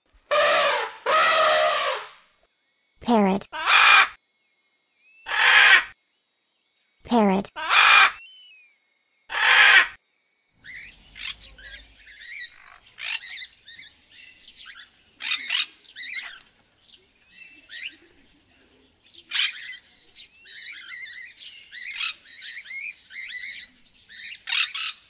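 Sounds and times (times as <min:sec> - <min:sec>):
parrots squawking and chattering: 0:00.3 - 0:02.2, 0:03.4 - 0:04.2, 0:05.3 - 0:06.0, 0:07.4 - 0:08.2, 0:09.3 - 0:10.0, 0:10.6 - 0:14.0, 0:14.6 - 0:16.6, 0:19.3 - 0:19.9, 0:20.5 - 0:25.0.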